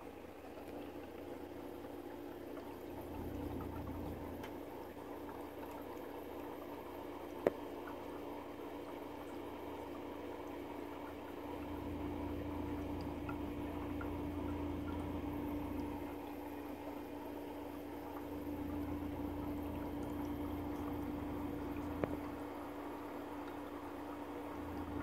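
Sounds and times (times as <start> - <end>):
constant mid-pitched tone: 0.0 - 25.0
steady low hum: 0.0 - 25.0.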